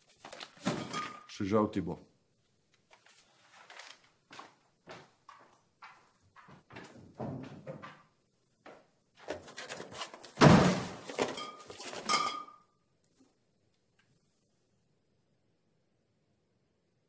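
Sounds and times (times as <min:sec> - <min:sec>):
footsteps on a hard floor: 0:04.2 - 0:12.0
knocking and rattling: 0:06.0 - 0:08.2.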